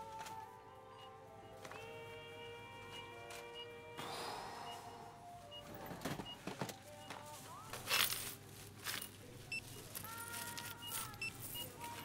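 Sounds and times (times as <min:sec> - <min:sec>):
plastic bag rustling: 0:05.9 - 0:12.0.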